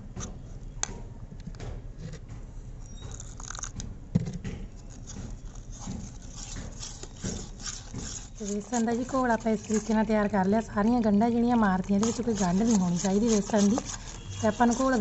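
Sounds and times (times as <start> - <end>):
metal spoon scraping a bowl: 4.8 - 15.0.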